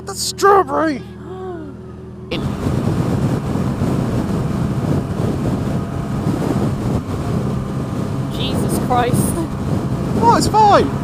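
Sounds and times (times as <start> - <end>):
motorcycle engine while riding: 0.0 - 11.0
wind buffeting microphone: 1.8 - 11.0.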